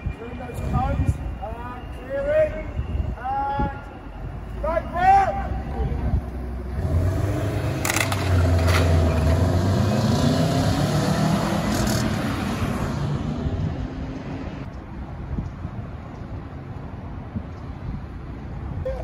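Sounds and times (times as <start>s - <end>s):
car engine accelerating: 6.7s - 13.4s.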